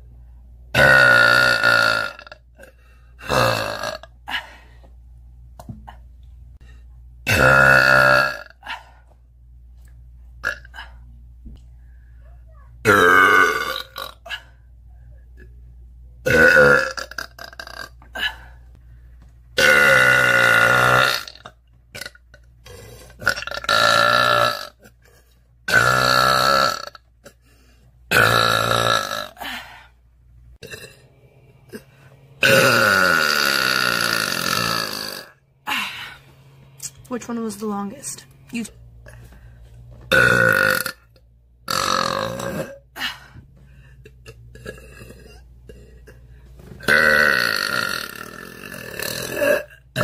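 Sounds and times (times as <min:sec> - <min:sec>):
woman burping loudly: 0:00.7 - 0:04.5, 0:07.2 - 0:08.8, 0:10.4 - 0:11.0, 0:12.8 - 0:14.6, 0:16.2 - 0:18.6, 0:19.6 - 0:27.4, 0:28.1 - 0:29.9, 0:30.6 - 0:31.0, 0:31.7 - 0:36.2, 0:40.1 - 0:43.2, 0:44.0 - 0:46.2, 0:46.8 - 0:50.0.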